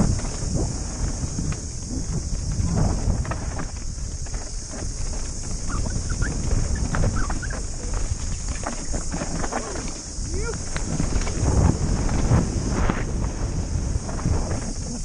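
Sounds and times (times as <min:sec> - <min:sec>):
bike knocking and rattling: 0:00.0 - 0:15.0
bike tyres over dirt and rock: 0:00.0 - 0:15.0
wind rumble: 0:00.0 - 0:15.0.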